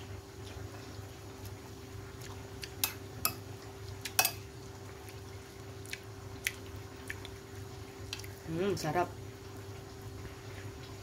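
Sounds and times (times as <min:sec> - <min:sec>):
spoon clinking on ceramic plate: 0:02.8 - 0:03.4, 0:04.2 - 0:04.4.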